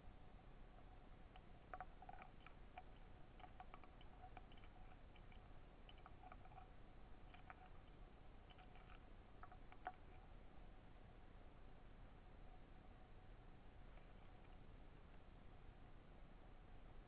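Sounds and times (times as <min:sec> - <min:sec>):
small underwater clicks: 0:01.3 - 0:10.4.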